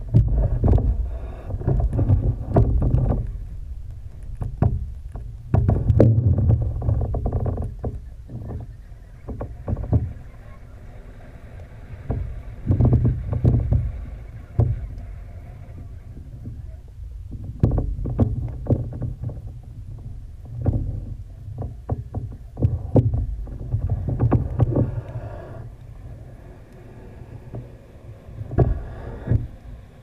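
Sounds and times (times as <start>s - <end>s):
sharp clicks and knocks: 0.0s - 30.0s
muffled underwater surges: 7.7s - 17.5s, 19.0s - 30.0s.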